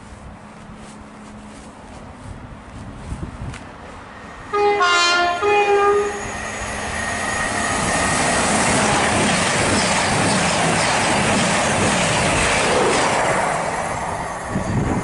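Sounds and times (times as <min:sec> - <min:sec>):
train rumbling past: 0:00.0 - 0:15.0
train horn: 0:04.5 - 0:06.4.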